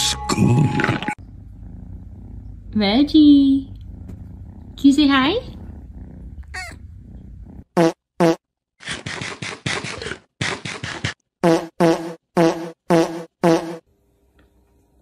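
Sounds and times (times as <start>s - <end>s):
fart-like toots: 5.5s - 13.9s.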